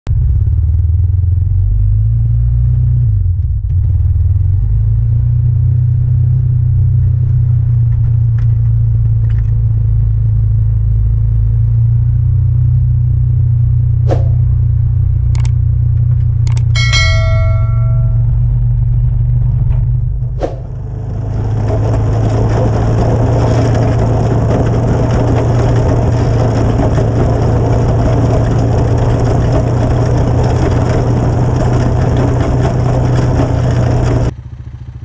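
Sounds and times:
quad engine rumble: 0:00.1 - 0:35.0
sharp clicks: 0:15.4 - 0:15.6, 0:16.5 - 0:16.7
bell-like ding: 0:16.5 - 0:18.5.

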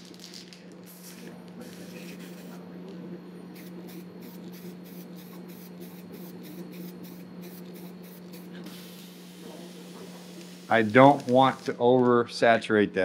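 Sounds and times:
aerosol can spraying: 0:03.5 - 0:11.6.

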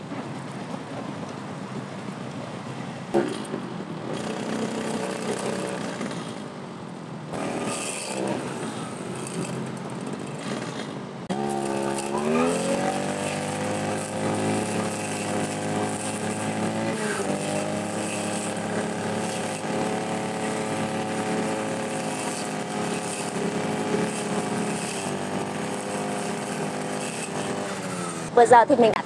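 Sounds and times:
brushcutter engine revving: 0:04.1 - 0:06.3, 0:07.3 - 0:28.4.

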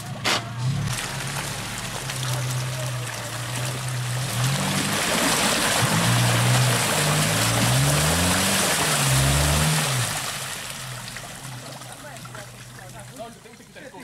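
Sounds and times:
engine revving: 0:00.0 - 0:11.0
tyres churning through mud: 0:00.0 - 0:14.0.

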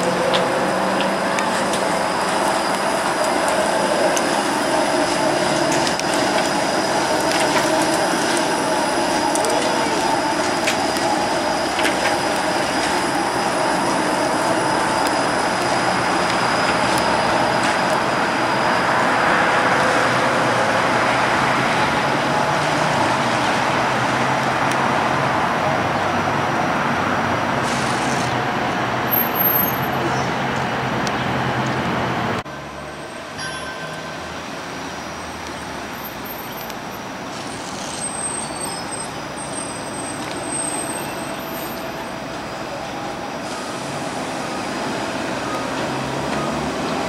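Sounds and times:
streetcar wheels rumbling: 0:00.0 - 0:47.0
faint wheel squeal: 0:37.3 - 0:42.8.

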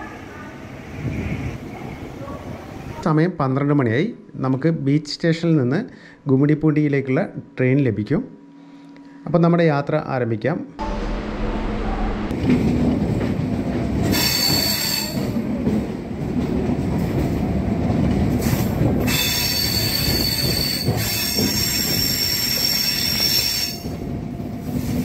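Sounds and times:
train rumbling on track: 0:10.8 - 0:25.0.

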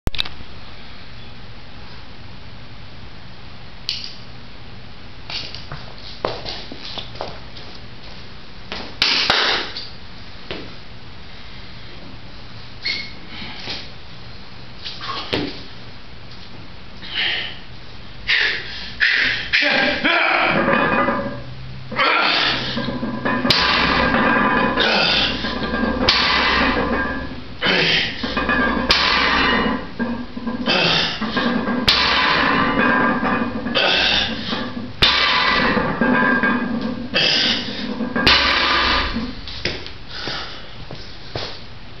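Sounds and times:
weight plates clanking on floor: 0:19.7 - 0:40.4
man breathing forcefully: 0:40.1 - 0:40.8.

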